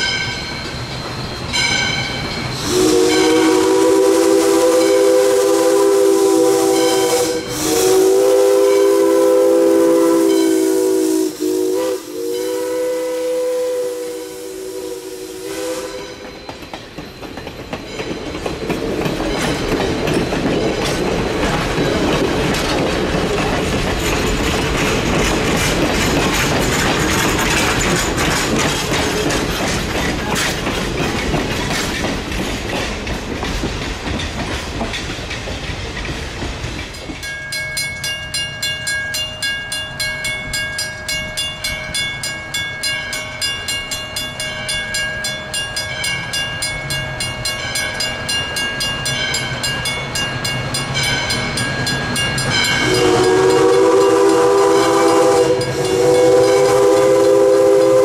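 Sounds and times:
crossing bell ringing: 0:00.0 - 0:05.4, 0:09.9 - 0:12.8, 0:15.5 - 0:22.7, 0:36.8 - 0:58.0
steam train passing on rails: 0:00.0 - 0:58.0.

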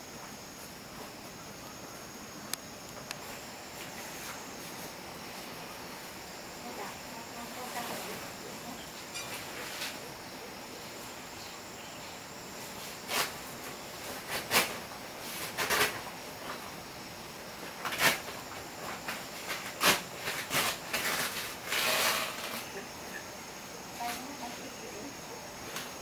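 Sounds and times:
faint steady hiss: 0:00.0 - 0:26.0
sharp scrapes and knocks: 0:19.0 - 0:22.7.

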